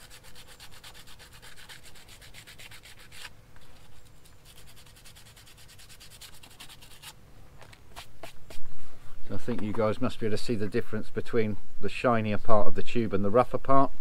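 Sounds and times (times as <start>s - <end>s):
sandpaper rubbing rubber tube: 0.0s - 7.2s.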